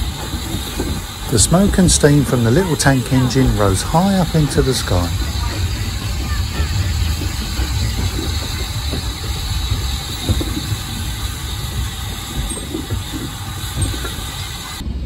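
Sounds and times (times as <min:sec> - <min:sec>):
steam hissing: 0:00.0 - 0:15.0
train rumbling on track: 0:00.0 - 0:15.0
knocking: 0:03.2 - 0:14.3.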